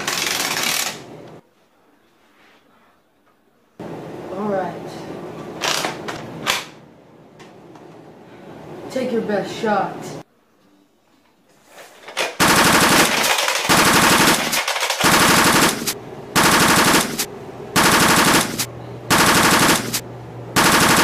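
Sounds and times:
simulated machine-gun fire: 12.4 - 20.0, 20.6 - 21.0.

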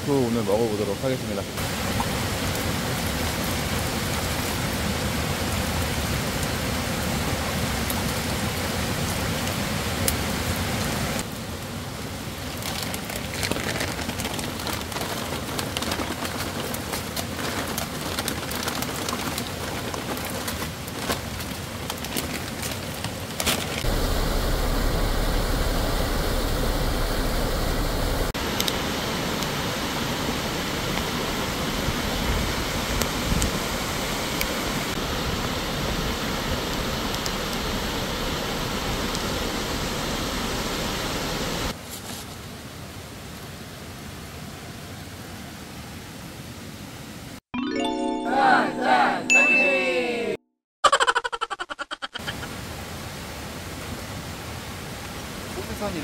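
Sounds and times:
steady rain: 0.0 - 47.4, 52.2 - 56.0
mountain stream rushing: 0.1 - 41.8, 52.2 - 56.0
clicks and crackles: 12.5 - 23.9.

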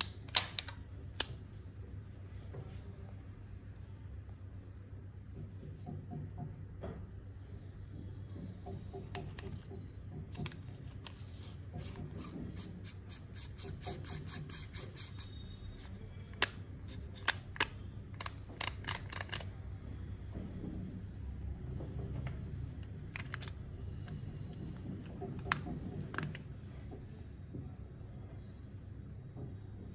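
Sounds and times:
rubbing of packaging: 10.7 - 19.6
light clicks and taps of small parts: 15.8 - 19.9, 21.7 - 27.0.

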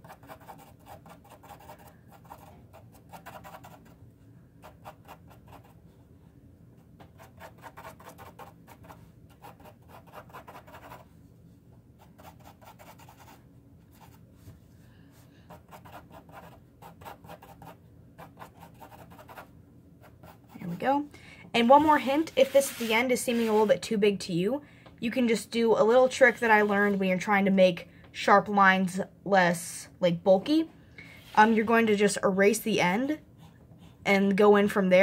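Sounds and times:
pencil scratching on paper: 0.0 - 3.9, 4.6 - 5.8, 7.1 - 11.1, 12.0 - 14.2, 15.5 - 20.8, 21.7 - 23.8.

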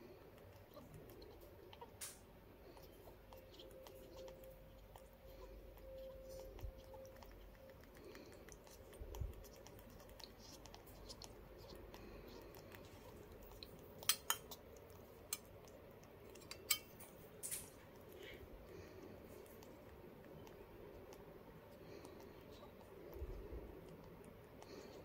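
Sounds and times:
metal spoon scraping on beak: 0.4 - 17.7.

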